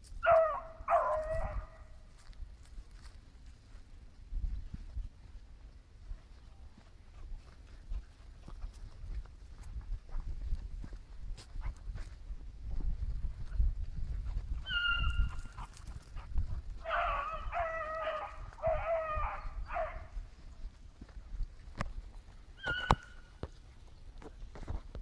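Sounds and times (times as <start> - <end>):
hounds baying: 0.2 - 2.0, 14.6 - 20.2, 22.6 - 23.3
hounds yelping: 0.2 - 2.0, 14.6 - 20.2, 22.6 - 23.4
low rumble on microphone: 3.6 - 22.4.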